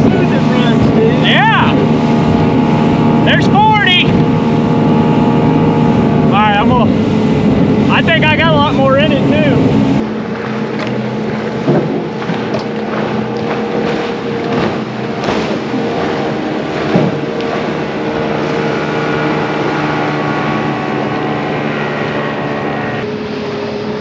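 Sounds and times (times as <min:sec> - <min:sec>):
outboard motor running: 0:00.0 - 0:24.0
wind on microphone: 0:00.0 - 0:24.0
short knocks: 0:14.4 - 0:17.7.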